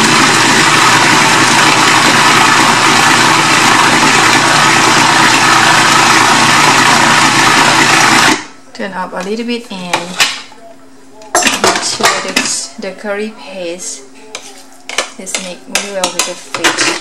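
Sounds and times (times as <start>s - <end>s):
food processor motor running: 0.0s - 8.5s.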